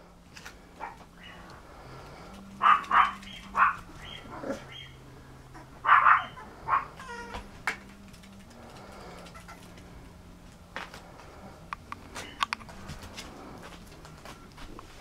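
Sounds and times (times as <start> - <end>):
faint steady hum: 0.0 - 15.0
puppy barking: 0.8 - 1.4, 2.6 - 5.0, 5.6 - 7.3.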